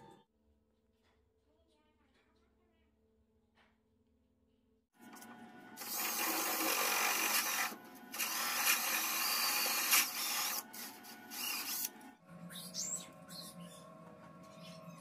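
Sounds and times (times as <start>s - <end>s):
cordless drill boring into wood: 5.8s - 11.9s.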